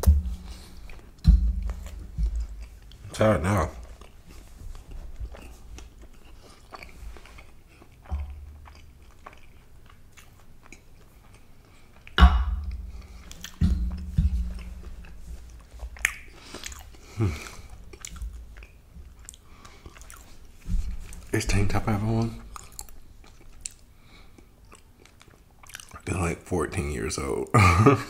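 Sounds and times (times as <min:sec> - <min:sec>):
sharp thump: 0:00.0 - 0:00.6, 0:01.2 - 0:02.4, 0:12.2 - 0:14.8
chewing and lip smacking: 0:00.0 - 0:26.1
knocks: 0:01.2 - 0:02.6, 0:12.2 - 0:15.0.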